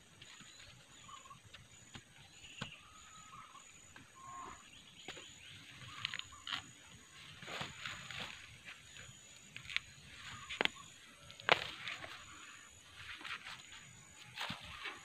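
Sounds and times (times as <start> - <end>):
faint animal calls: 2.6 - 4.8
soil scraping and crumbling: 9.6 - 15.0.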